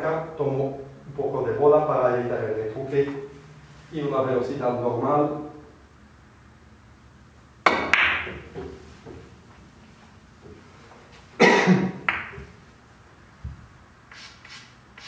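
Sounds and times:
billiard balls clicking: 7.6s - 9.3s, 12.0s - 12.5s
balls knocking off cushions: 7.7s - 9.3s
cue tip clicking on ball: 12.1s - 12.4s.

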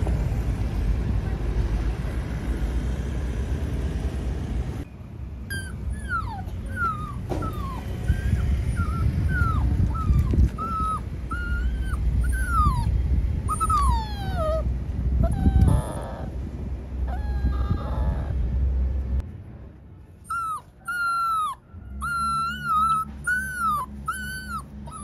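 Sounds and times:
road traffic rumble: 0.0s - 25.0s
puppy whimpering and crying: 5.5s - 16.4s, 17.0s - 18.4s, 20.2s - 25.0s.

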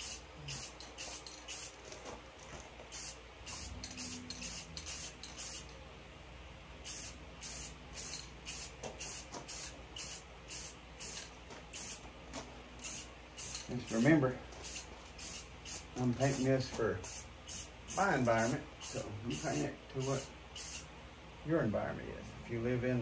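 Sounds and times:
spray can hissing: 0.0s - 1.8s, 2.9s - 5.7s, 6.8s - 12.0s, 12.8s - 16.5s, 17.1s - 20.8s.

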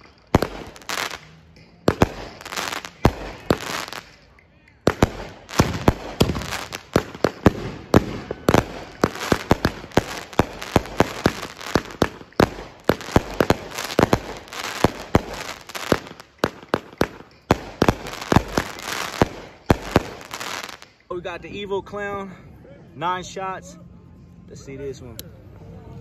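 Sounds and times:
firework bangs: 0.0s - 4.2s, 4.8s - 21.0s
crackling firework stars: 0.0s - 21.2s.

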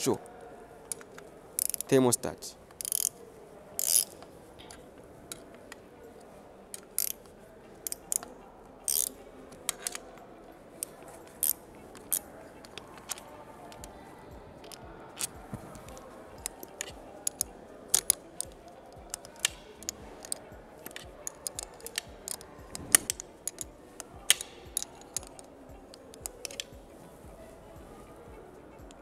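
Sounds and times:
spanner clicking on bolts: 2.8s - 3.1s, 3.8s - 4.2s, 8.9s - 9.1s, 24.3s - 25.4s.

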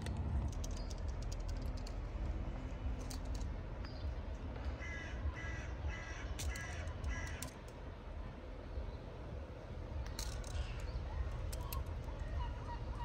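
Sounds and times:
low background rumble: 0.0s - 13.0s
crow cawing: 4.8s - 7.6s.

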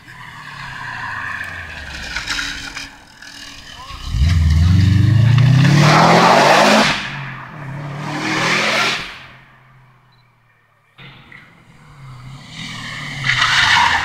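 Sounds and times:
rally car engine accelerating: 0.3s - 9.5s.

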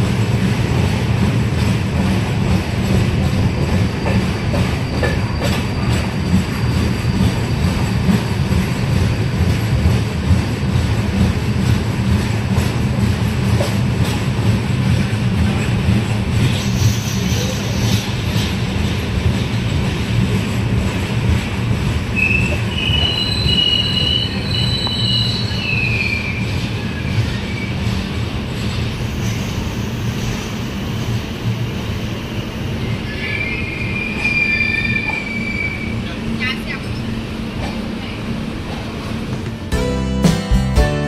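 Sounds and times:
train rumbling: 0.0s - 41.0s
train wheels squealing on rails: 1.6s - 11.0s, 15.0s - 37.3s.

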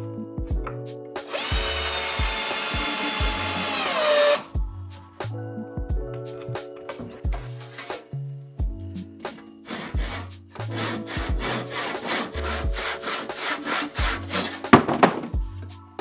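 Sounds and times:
background music: 0.0s - 16.0s
hand saw cutting wood: 1.2s - 4.4s, 9.6s - 15.2s.

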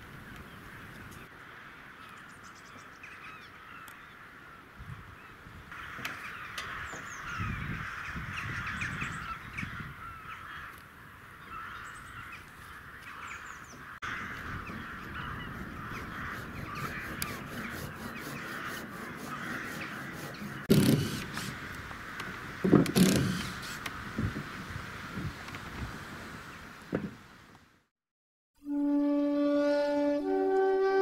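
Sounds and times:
flock of crows cawing: 0.6s - 4.7s, 5.7s - 23.8s.

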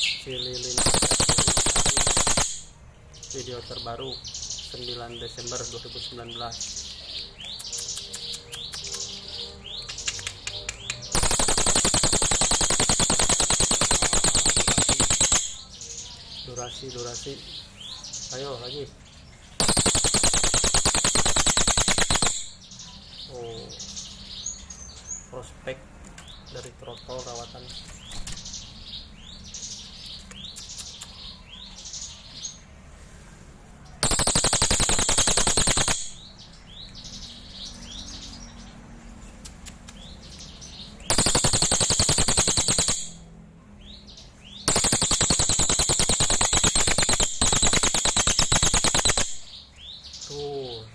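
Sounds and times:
jay chirping: 0.0s - 25.6s, 33.9s - 38.8s, 39.4s - 50.9s
jay loud fast rattle: 11.2s - 15.5s, 34.0s - 36.1s, 44.7s - 49.3s
jay whistled calls with clicks: 19.6s - 22.5s, 44.7s - 49.4s.

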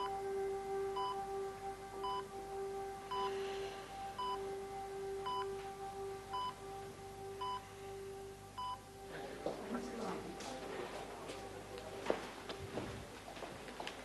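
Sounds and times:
patient monitor beeping: 0.0s - 0.3s, 0.9s - 1.3s, 2.0s - 2.3s, 3.1s - 3.4s, 4.0s - 6.8s, 7.4s - 7.7s, 8.5s - 11.0s
steady low drone: 0.0s - 12.5s.

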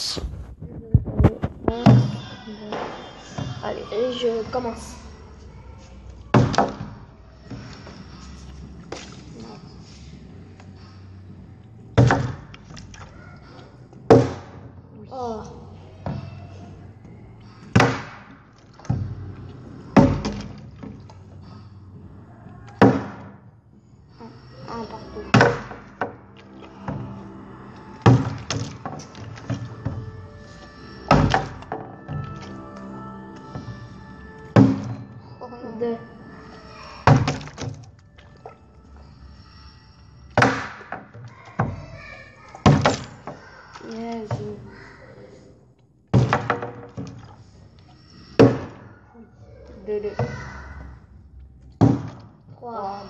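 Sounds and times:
plastic bottle landing thunk: 17.8s - 18.3s, 46.1s - 47.2s, 51.8s - 52.3s.

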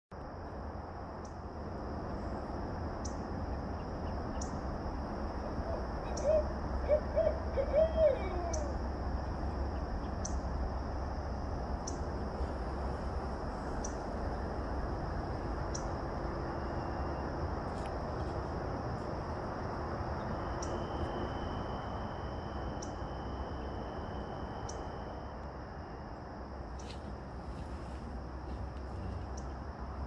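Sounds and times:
owl hooting: 5.4s - 9.0s.

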